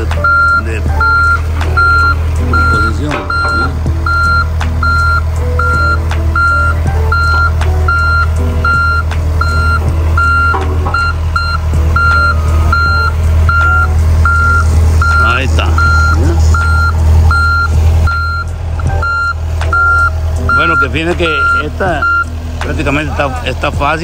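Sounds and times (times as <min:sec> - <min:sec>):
backup alarm beeping: 0:00.0 - 0:22.4
diesel engine running: 0:00.0 - 0:24.0.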